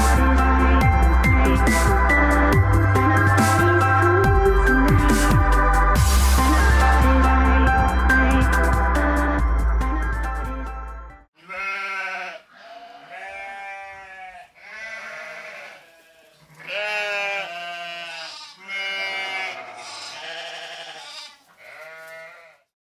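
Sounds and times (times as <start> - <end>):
quavering bleating: 11.4 - 22.7.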